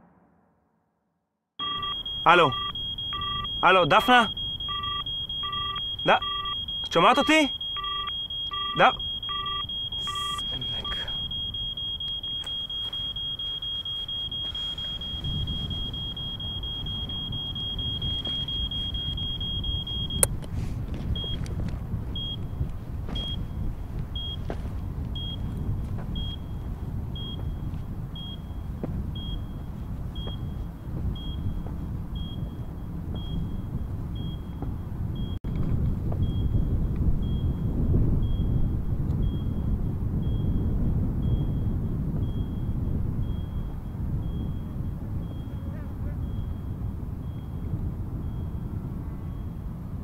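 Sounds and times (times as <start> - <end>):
steady high electronic tone: 1.6 - 20.3
mine detector beeping: 1.6 - 35.4, 36.2 - 48.7
low rumble of wind: 1.6 - 50.0.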